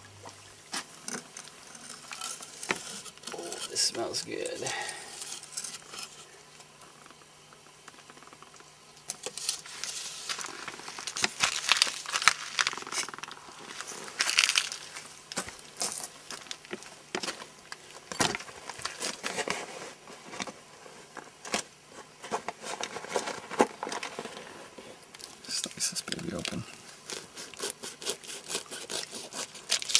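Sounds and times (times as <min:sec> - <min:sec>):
dry bark crackling: 0:00.7 - 0:19.4, 0:25.1 - 0:29.9
wooden sticks scraping on stones: 0:00.8 - 0:06.4, 0:09.1 - 0:17.4.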